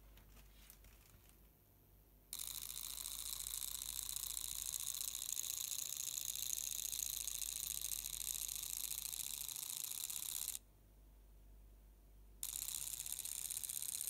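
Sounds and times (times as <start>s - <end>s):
model train motor whirring: 2.4s - 10.6s, 12.4s - 14.0s.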